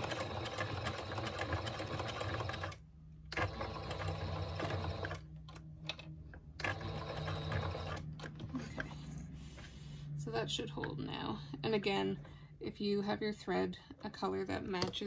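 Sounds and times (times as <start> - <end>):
sewing machine stitching: 0.0 - 5.2, 6.6 - 8.4.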